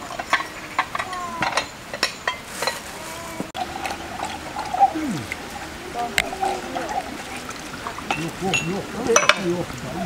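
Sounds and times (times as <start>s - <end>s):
plates and cutlery clinking: 8.1s - 9.5s.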